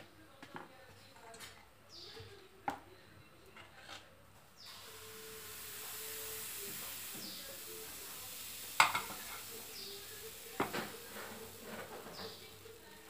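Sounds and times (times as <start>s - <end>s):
batter sizzling in frying pan: 4.6s - 13.0s.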